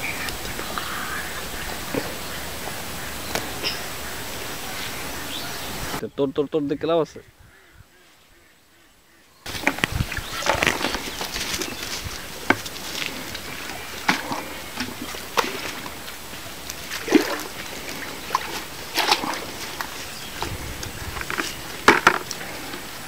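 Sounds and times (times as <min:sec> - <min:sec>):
water sloshing and splashing: 0:09.5 - 0:23.0
bucket knocks: 0:21.2 - 0:22.4.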